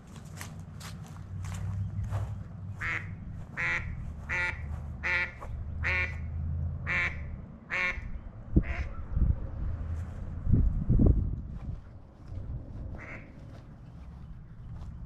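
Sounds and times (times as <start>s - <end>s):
footsteps on grass: 0.0s - 6.2s, 9.9s - 15.0s
duck quacking: 2.8s - 8.9s, 12.9s - 13.3s.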